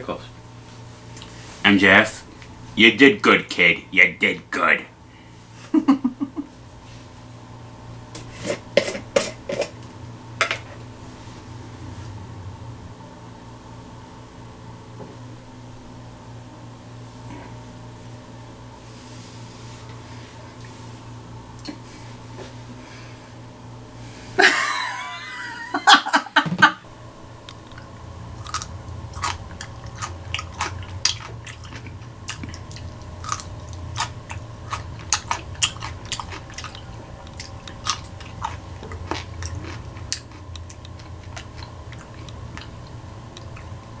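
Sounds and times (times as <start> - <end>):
person crunching a pickle: 27.5 - 43.8.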